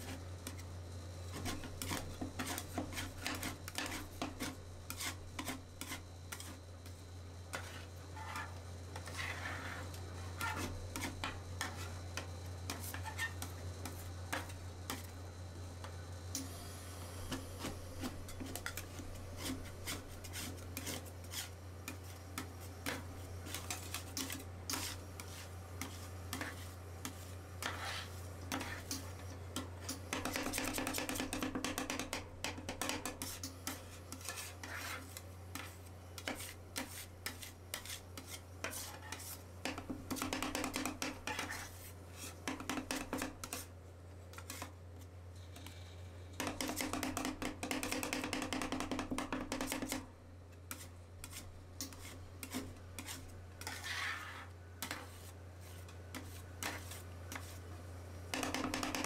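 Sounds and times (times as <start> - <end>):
steady low hum: 0.0 - 40.1
metal spatulas scraping metal pan: 1.3 - 6.6, 7.5 - 11.9, 17.6 - 29.2, 32.8 - 39.4, 50.7 - 57.6.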